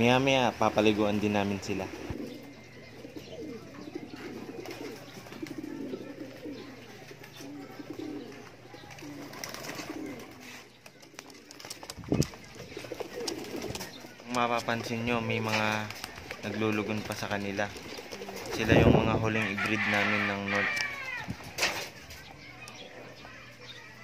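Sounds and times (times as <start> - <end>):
pigeons cooing: 0.0 - 24.0.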